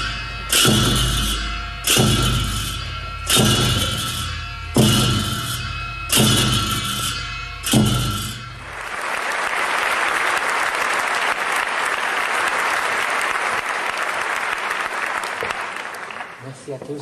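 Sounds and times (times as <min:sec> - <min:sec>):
ritual dance music with drum: 0:00.0 - 0:08.7
cymbals struck: 0:00.0 - 0:08.8
audience applauding: 0:08.6 - 0:16.8.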